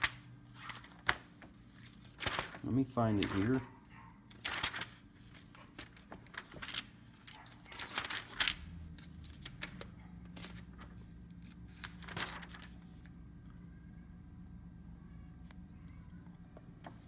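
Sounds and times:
book pages flipping: 0.0 - 3.6, 4.3 - 13.1
faint low hum: 0.0 - 17.0.

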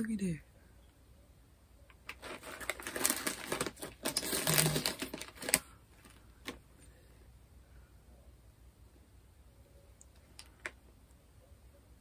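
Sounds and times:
chips packaging crackling: 2.0 - 6.6.

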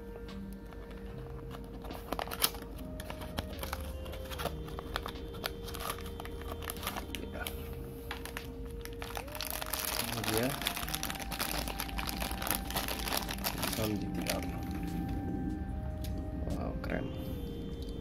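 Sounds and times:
cardboard box handled and opened: 0.8 - 7.1.

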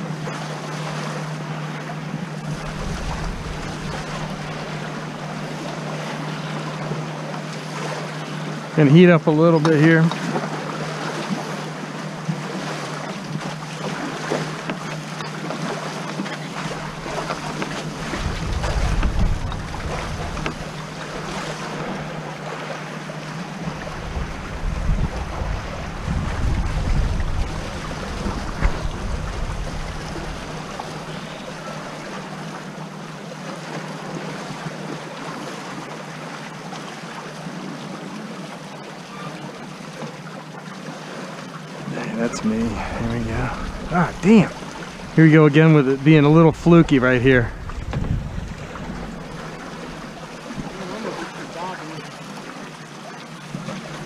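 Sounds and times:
water rushing past hulls: 0.0 - 54.0
wind buffeting microphone: 2.4 - 4.9, 16.6 - 22.1, 23.6 - 31.1, 41.9 - 50.8.

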